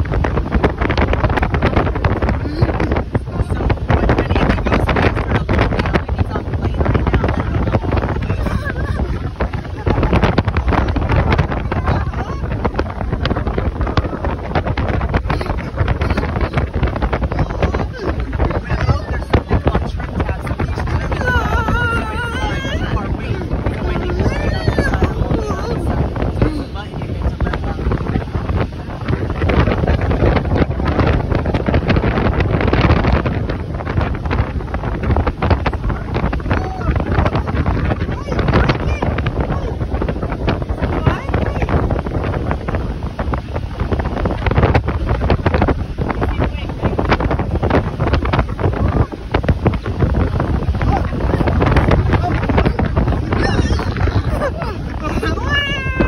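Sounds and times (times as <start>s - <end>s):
boat rushing across water: 0.0s - 56.0s
wind buffeting microphone: 0.0s - 56.0s.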